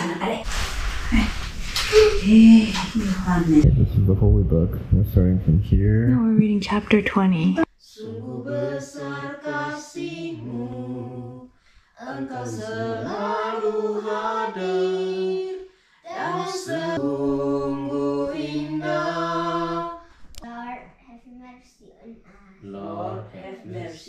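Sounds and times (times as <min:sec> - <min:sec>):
voices singing a hymn: 0:07.8 - 0:20.2, 0:22.6 - 0:24.0.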